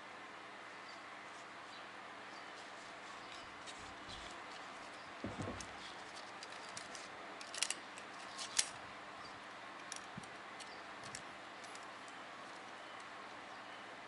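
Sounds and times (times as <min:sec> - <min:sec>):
metal rings clicking: 0:04.9 - 0:08.8
dull knock: 0:05.2 - 0:05.7.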